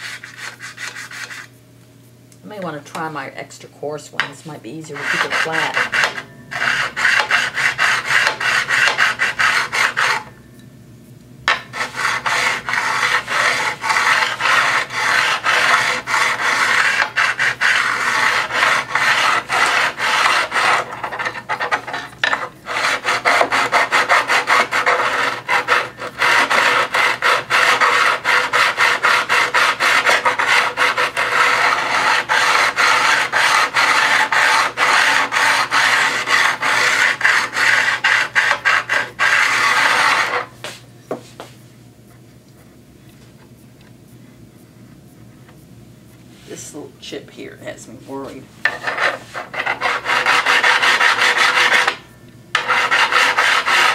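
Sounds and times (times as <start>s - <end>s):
hone scraping along steel blade: 0.0s - 1.6s, 4.2s - 10.3s, 11.5s - 40.6s, 47.7s - 53.9s.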